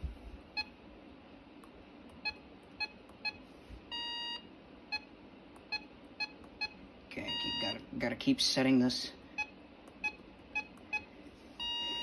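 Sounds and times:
longer beep: 6.6s - 7.8s.

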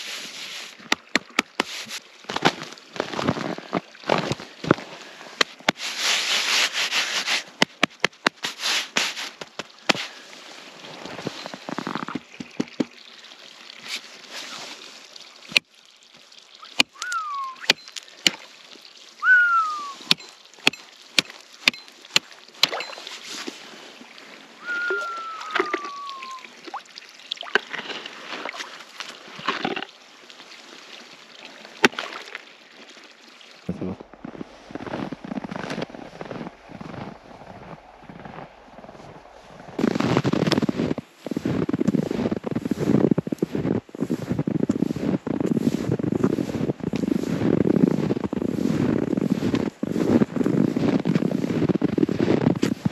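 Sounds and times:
water sloshing: 0.1s - 41.9s
falling whistle-like tones: 16.9s - 17.7s, 19.2s - 20.1s, 24.6s - 26.5s
ice chunks clattering: 24.7s - 26.4s, 27.5s - 29.9s.

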